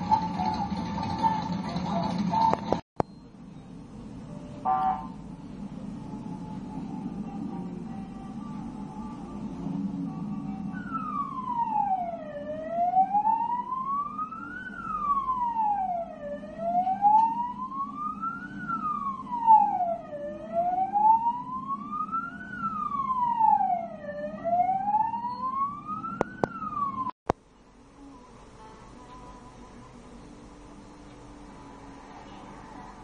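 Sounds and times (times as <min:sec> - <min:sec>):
siren wailing: 0:04.6 - 0:27.1.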